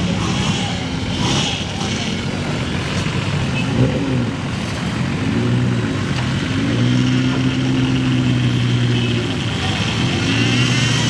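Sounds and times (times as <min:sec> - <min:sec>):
off-road vehicle engine revving: 0:00.0 - 0:11.0.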